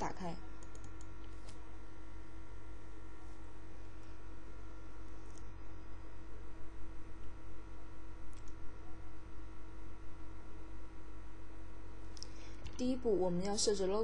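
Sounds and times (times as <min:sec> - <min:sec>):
electrical mains hum: 0:00.0 - 0:14.0
faint sharp clicks: 0:08.3 - 0:08.6.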